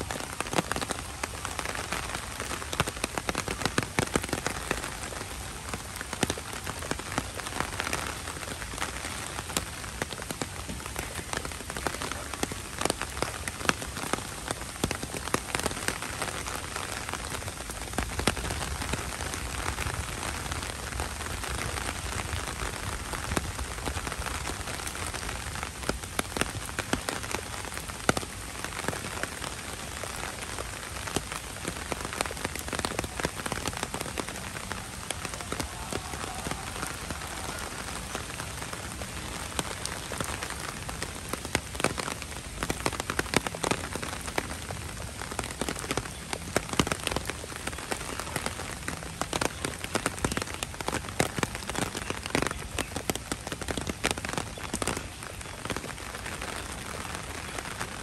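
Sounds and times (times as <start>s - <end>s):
heavy rain on wet pavement: 0.0s - 58.0s.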